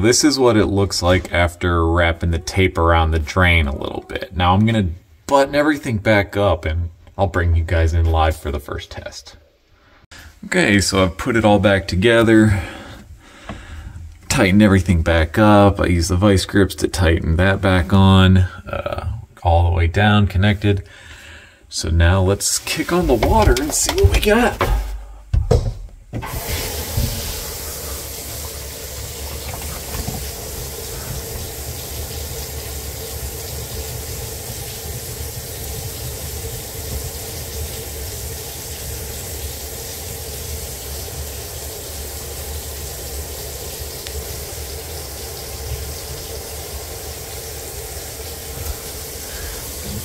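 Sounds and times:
water pouring down drain: 22.6 - 24.5, 26.2 - 50.0
faucet water running into sink: 22.6 - 24.6, 26.2 - 50.0.

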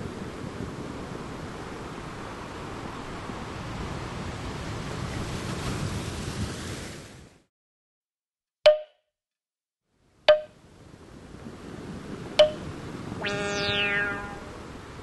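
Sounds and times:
surf noise: 0.0 - 7.2, 10.3 - 15.0
soft waves washing: 0.0 - 7.4, 10.3 - 15.0
wood block knocks: 8.7 - 9.0, 10.3 - 10.5, 12.4 - 12.6.

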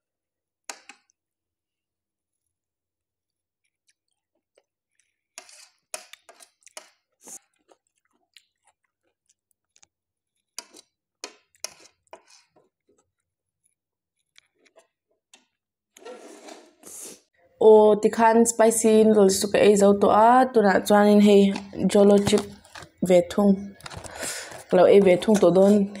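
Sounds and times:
wet chewing mouth sounds: 6.1 - 9.9.

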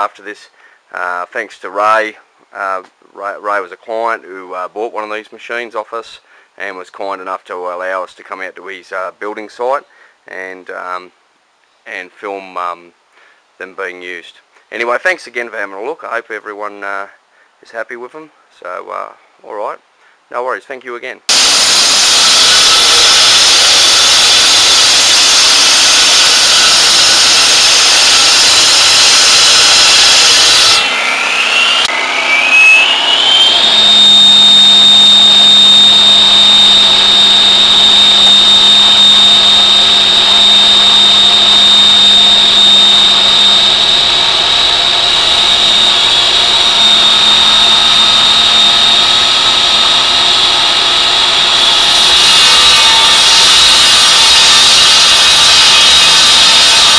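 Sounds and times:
saw blade hissing on masonry: 21.3 - 31.9, 32.9 - 56.9
petrol engine running: 21.3 - 52.2
high-pitched saw whine: 21.3 - 56.9.

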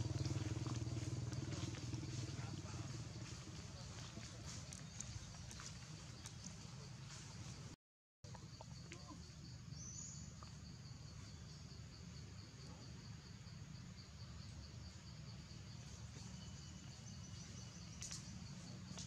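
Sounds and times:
low steady rumble: 0.0 - 7.6
insects trilling: 0.0 - 7.7, 8.3 - 19.0.

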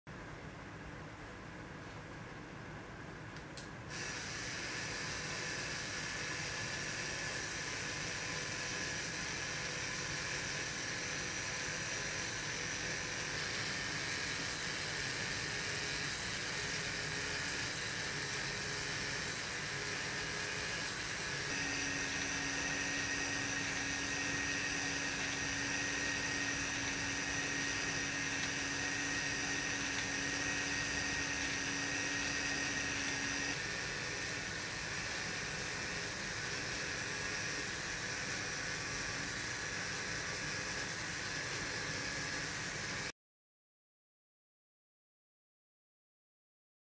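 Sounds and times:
electric motor and gears whirring: 3.9 - 43.1.

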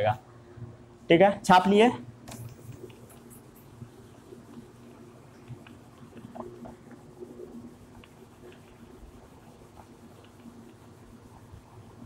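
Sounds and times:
duster rubbing a whiteboard: 2.4 - 12.0.

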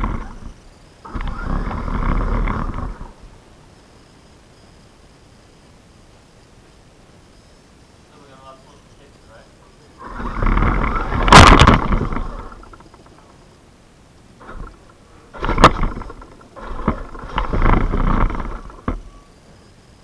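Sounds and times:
robot motors and gears whirring: 0.0 - 3.3, 10.0 - 13.3, 14.4 - 19.7.

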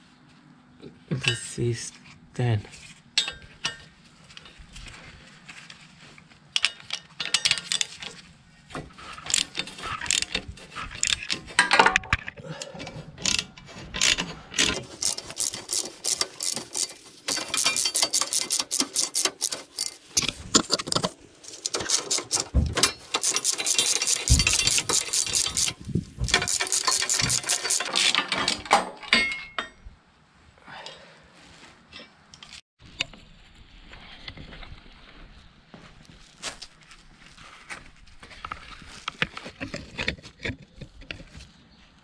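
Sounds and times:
socket ratchet clicking: 14.8 - 20.0, 21.7 - 28.0.

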